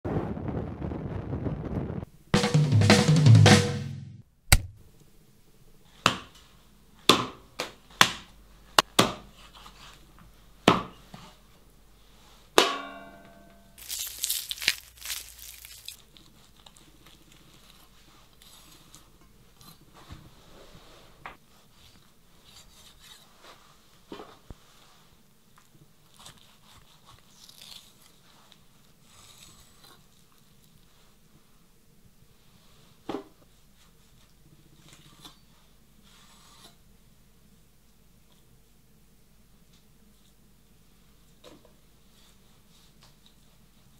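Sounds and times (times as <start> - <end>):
drum and percussion hits: 2.4 - 4.8.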